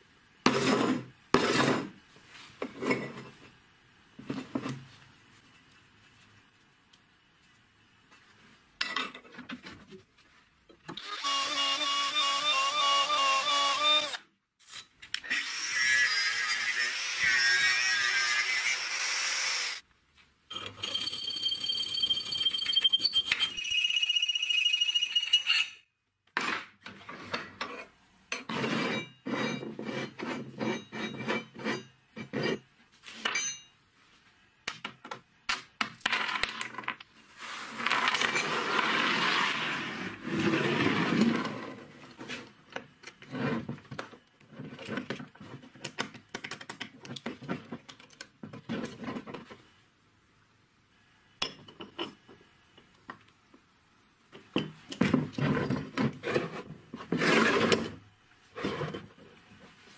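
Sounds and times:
drill boring into metal tube: 0:11.0 - 0:14.2
cutting or filing metal: 0:11.0 - 0:19.8.

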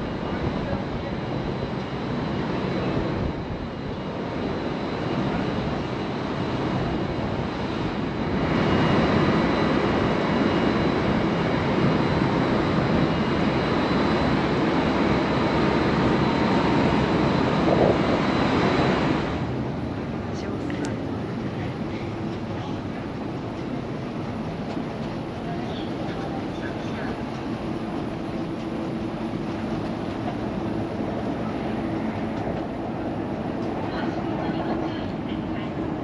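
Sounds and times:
wind gusting: 0:05.5 - 0:22.4.

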